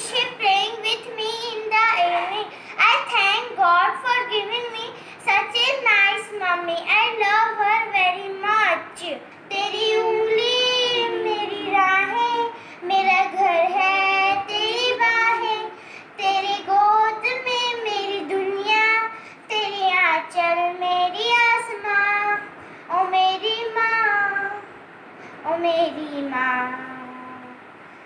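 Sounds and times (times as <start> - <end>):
girl singing unaccompanied: 0.0 - 27.8.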